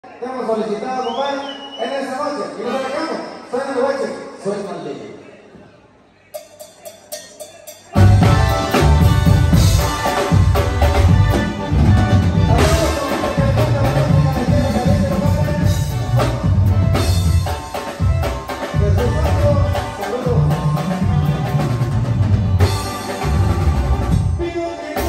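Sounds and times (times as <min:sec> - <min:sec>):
drum kit: 0:06.4 - 0:25.0
heavy pulsing bass line: 0:08.0 - 0:24.4.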